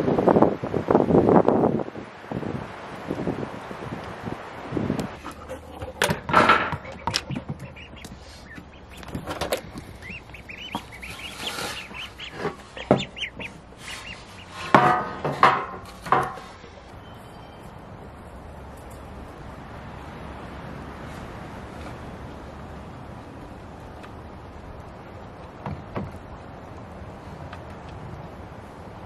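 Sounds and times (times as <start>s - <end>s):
duckling peeping: 5.1s - 14.7s
loud bird calls: 5.2s - 15.0s.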